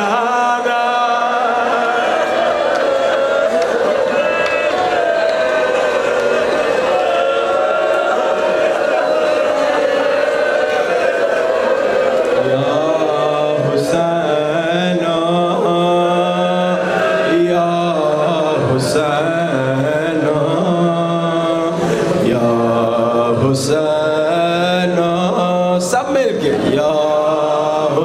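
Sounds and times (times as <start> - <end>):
man chanting a lament: 12.4 - 28.0.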